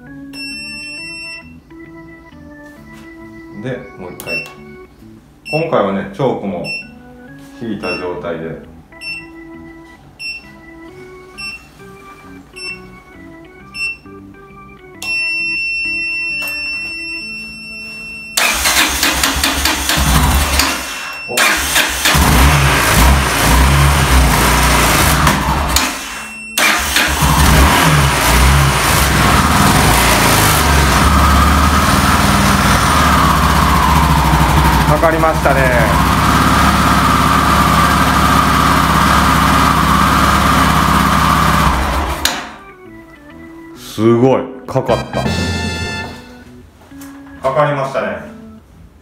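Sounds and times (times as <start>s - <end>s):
motorcycle engine cranking and starting: 18.4s - 42.6s.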